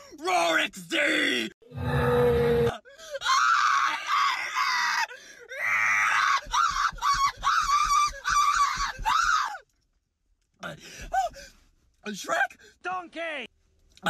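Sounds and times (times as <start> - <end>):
young man screaming: 0.2 - 9.6.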